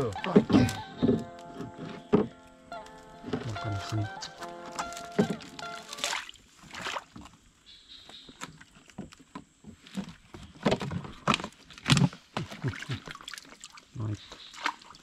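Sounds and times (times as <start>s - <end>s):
water splashing: 3.3s - 7.4s, 11.8s - 15.0s.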